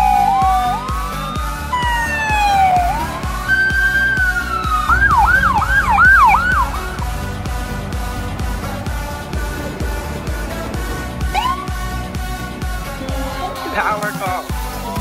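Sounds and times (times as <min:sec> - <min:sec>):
electronic siren wailing and yelping: 0:00.0 - 0:07.1, 0:11.3 - 0:11.7
background music with steady beat: 0:00.0 - 0:15.0.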